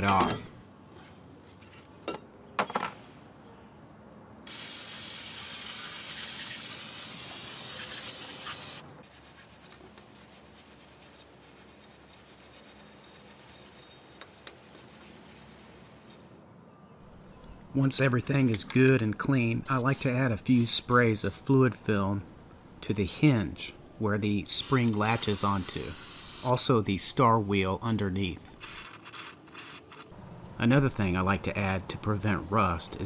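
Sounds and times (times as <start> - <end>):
loud steady hiss: 4.5 - 9.0, 24.2 - 27.0
wire brush scrubbing metal: 5.6 - 16.4, 19.6 - 21.2, 24.5 - 26.6.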